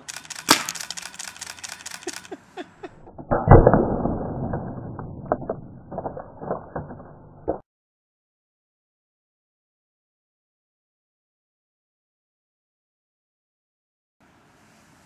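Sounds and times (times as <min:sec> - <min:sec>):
quick clicks: 0:00.0 - 0:03.0
paintball gun firing: 0:00.1 - 0:01.8.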